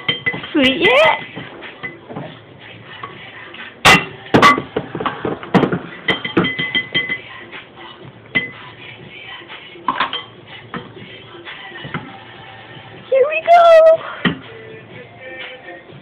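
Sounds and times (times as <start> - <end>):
dishes and utensils clinking: 0.0 - 0.9, 1.7 - 2.4, 3.8 - 7.4, 8.3 - 8.7, 9.9 - 11.0
background music: 0.0 - 16.0.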